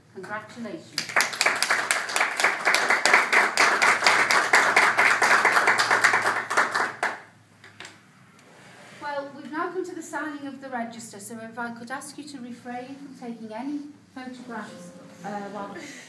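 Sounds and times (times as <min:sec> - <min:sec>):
people applauding: 0:01.0 - 0:07.3.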